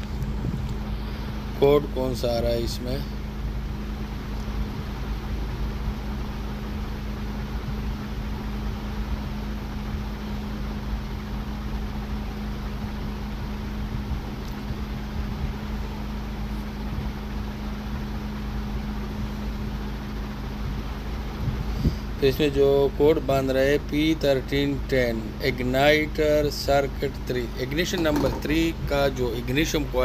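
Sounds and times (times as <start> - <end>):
low rumble: 0.0 - 1.5
steady mechanical hum: 0.0 - 30.0.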